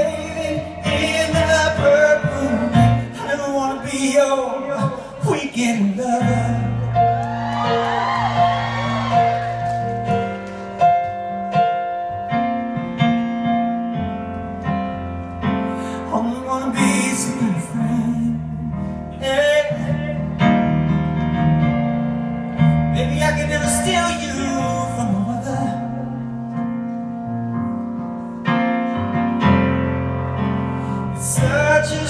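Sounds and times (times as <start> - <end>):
man singing: 0.0 - 7.1, 16.0 - 20.6, 22.9 - 26.2, 31.1 - 32.0
grand piano chords: 0.0 - 32.0.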